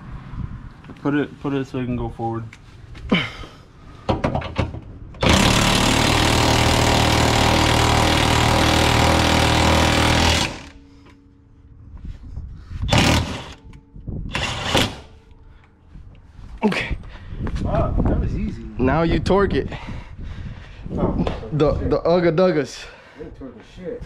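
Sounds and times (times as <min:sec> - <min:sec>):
impact wrench running: 0:05.2 - 0:11.2, 0:12.9 - 0:15.2.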